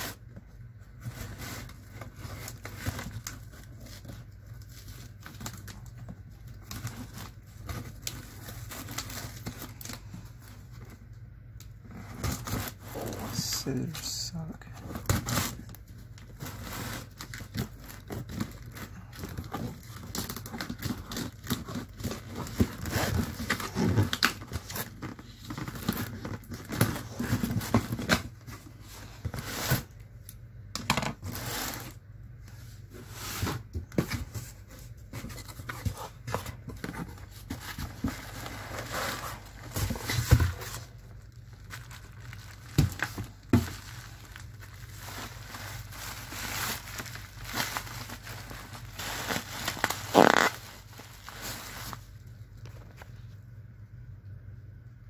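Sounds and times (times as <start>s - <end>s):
bubble wrap crinkling: 0.0s - 30.4s, 31.2s - 53.2s
cardboard and packing tape ripping: 12.0s - 13.4s, 14.9s - 15.7s, 16.3s - 28.4s, 31.2s - 32.0s, 41.6s - 52.0s.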